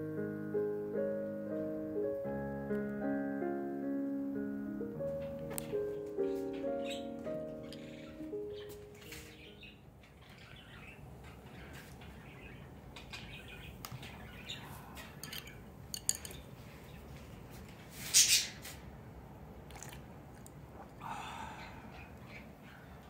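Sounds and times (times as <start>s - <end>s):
chopsticks clicking on ceramic bowl: 15.2s - 16.4s.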